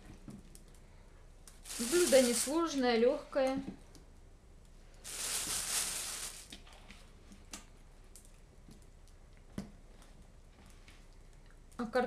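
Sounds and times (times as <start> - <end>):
plastic bag crinkling: 1.6 - 2.8, 5.0 - 6.5.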